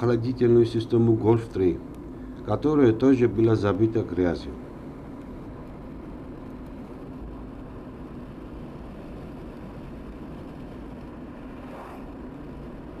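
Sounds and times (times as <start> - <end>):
car engine and road noise: 4.8 - 13.0.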